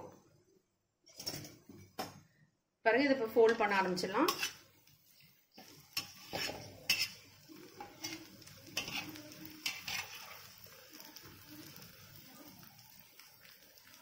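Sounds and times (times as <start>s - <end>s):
metal spatula scraping griddle: 3.5s - 10.6s
egg sizzling in oil: 3.6s - 14.0s.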